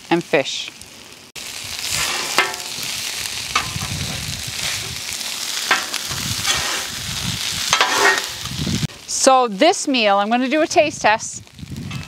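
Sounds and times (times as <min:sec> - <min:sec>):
food sizzling on a griddle: 0:00.0 - 0:12.0
metal scraper scraping griddle: 0:01.9 - 0:02.8, 0:05.7 - 0:07.0, 0:07.7 - 0:08.4.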